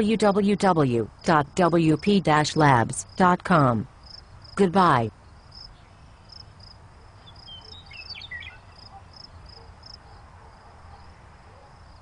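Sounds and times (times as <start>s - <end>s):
crickets chirping: 3.9s - 4.6s, 5.2s - 12.0s
birds chirping: 7.2s - 9.7s.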